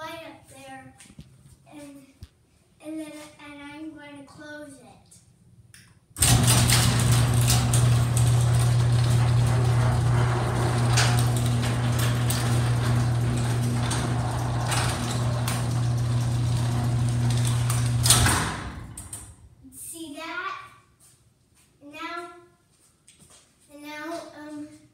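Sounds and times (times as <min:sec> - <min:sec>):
metal door knocking and rattling: 0:06.2 - 0:19.4
garage door opener motor humming: 0:06.2 - 0:19.6.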